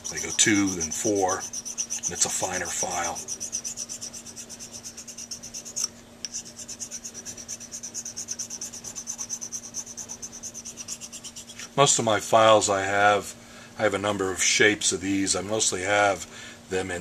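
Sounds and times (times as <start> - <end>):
file scraping metal mouthpiece: 0.0 - 11.7.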